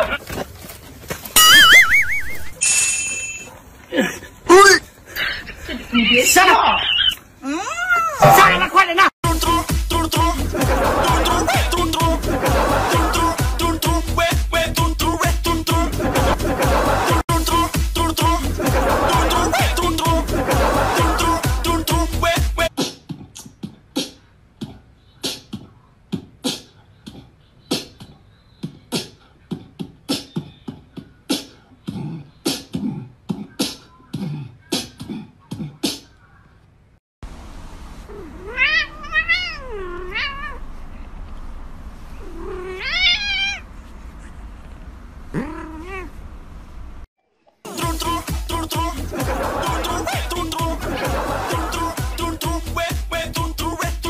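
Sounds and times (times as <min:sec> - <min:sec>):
cat yowling: 0:38.1 - 0:40.6, 0:42.2 - 0:43.6, 0:45.3 - 0:46.1.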